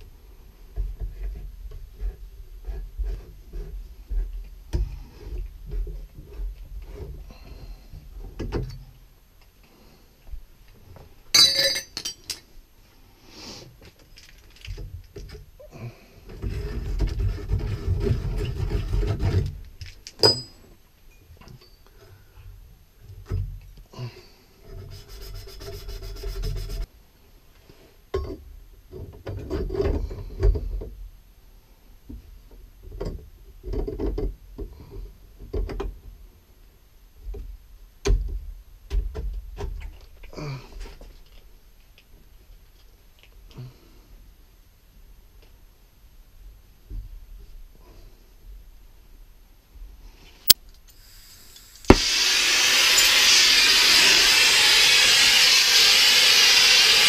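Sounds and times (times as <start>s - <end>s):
copper pipe knocks and clinks: 11.4s - 12.4s, 20.2s - 20.6s
rubbing and scraping: 16.4s - 19.7s, 24.7s - 26.9s.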